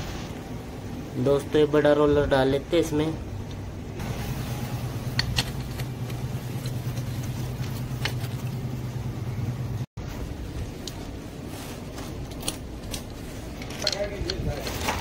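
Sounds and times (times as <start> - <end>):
steady low hum: 0.0 - 14.6
small metallic clicks: 12.3 - 15.0.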